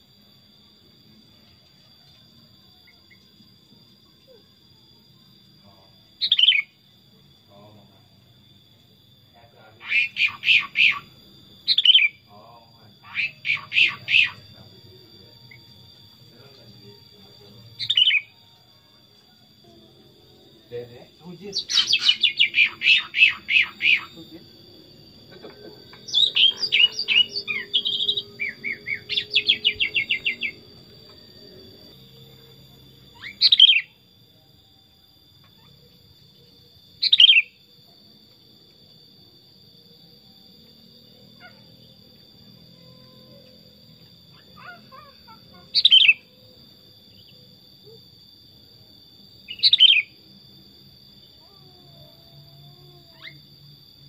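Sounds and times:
faint bird chirps: 1.4s - 6.8s, 9.3s - 20.0s, 20.6s - 37.9s, 41.0s - 48.1s, 49.4s - 50.2s, 51.2s - 53.5s
bulbul singing: 5.7s - 6.8s, 9.7s - 19.8s, 20.5s - 34.1s, 35.5s - 37.7s, 42.7s - 48.0s, 49.4s - 50.2s
bird whistled calls: 21.6s - 24.1s, 33.2s - 33.9s, 37.0s - 37.5s, 45.8s - 46.2s, 49.5s - 50.1s.

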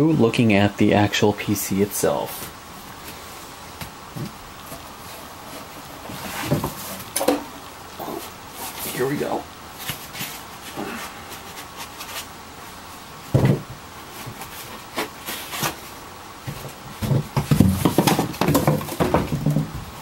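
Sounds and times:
scraping against cardboard box: 4.8s - 7.1s, 9.8s - 12.3s, 14.0s - 19.7s
computer case bumping: 13.3s - 13.8s, 16.5s - 20.0s.

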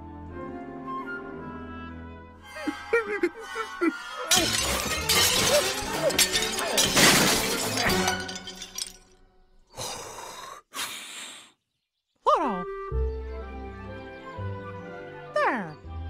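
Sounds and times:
orchestral music: 0.5s - 8.7s, 12.6s - 15.3s
clattering shattering noise: 4.3s - 9.3s.

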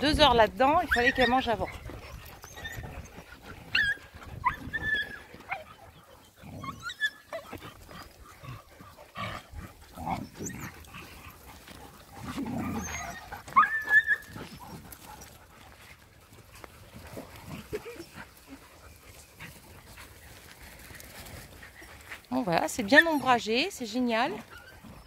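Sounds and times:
dogs yelping: 0.6s - 15.4s, 22.7s - 25.0s
dogs growling playfully: 0.9s - 25.0s.

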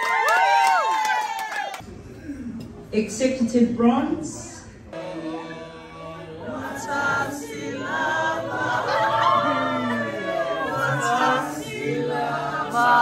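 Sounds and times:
group singing without instruments: 4.9s - 13.0s.

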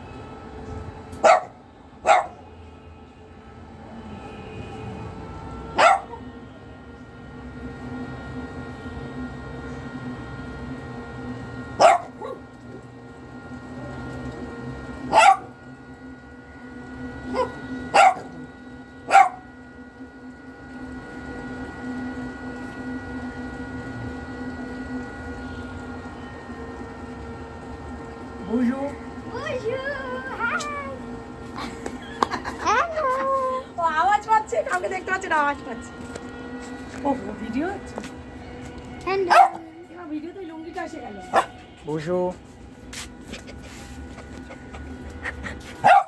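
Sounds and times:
dog barking: 1.2s - 2.4s, 5.8s - 6.2s, 11.8s - 12.4s, 15.1s - 15.5s, 17.3s - 18.4s, 19.1s - 19.4s, 39.3s - 39.6s, 41.3s - 41.6s.

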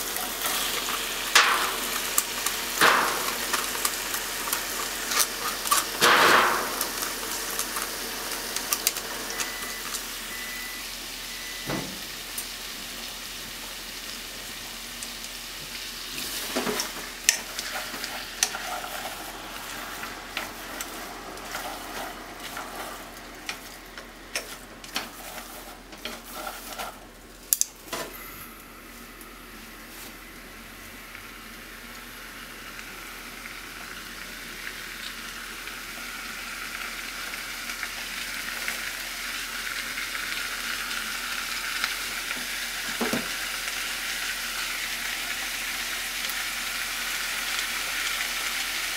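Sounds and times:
food sizzling in a pot: 0.0s - 48.9s
spatula scraping pot: 17.3s - 27.0s.

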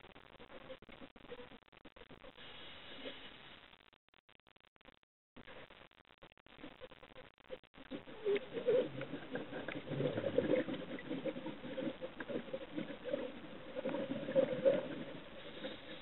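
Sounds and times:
underwater crackling and gurgling: 6.4s - 16.0s.

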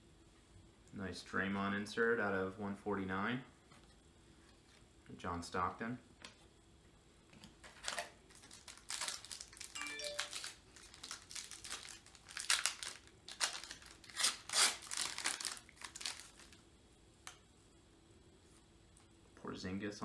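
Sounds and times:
wrapper crinkling and tearing: 7.6s - 16.6s.

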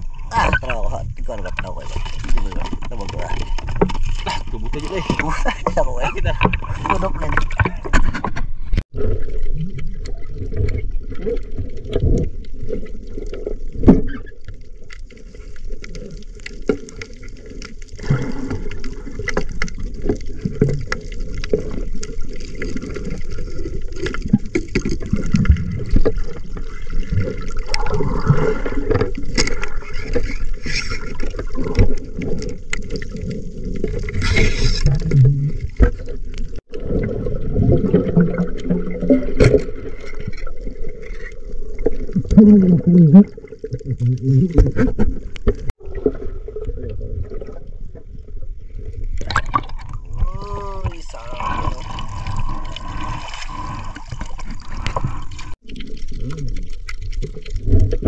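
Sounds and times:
underwater churning water: 0.0s - 58.0s
underwater clicks and crackles: 0.0s - 58.0s
hissing rush of bubbles: 25.0s - 32.2s, 49.2s - 57.2s.

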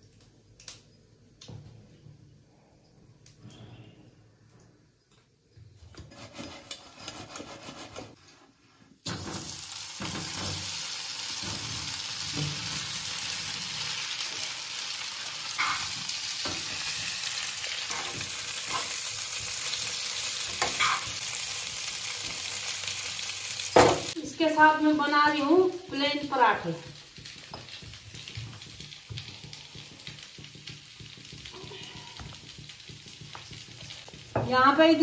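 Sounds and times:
food sizzling in frying pan: 9.1s - 35.0s
spatula scraping a pan: 27.0s - 34.3s.

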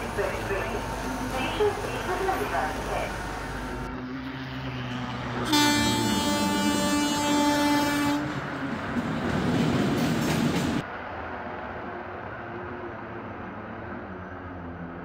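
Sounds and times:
passing train rumble: 0.0s - 15.0s
locomotive horn blast: 5.4s - 8.3s.

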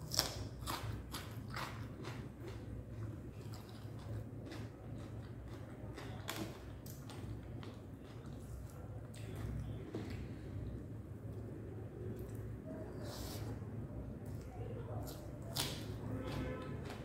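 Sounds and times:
close-up crunchy chewing: 0.0s - 10.3s.

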